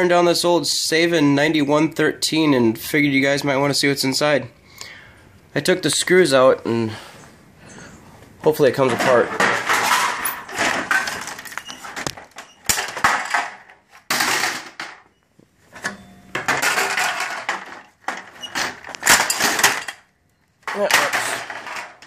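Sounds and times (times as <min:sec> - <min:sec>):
panels clattering and scraping: 0:08.5 - 0:22.0.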